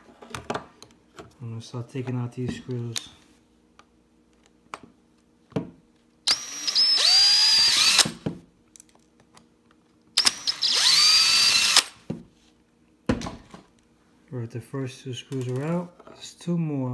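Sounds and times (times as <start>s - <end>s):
power screwdriver motor whine: 6.3s - 8.2s, 10.2s - 12.0s.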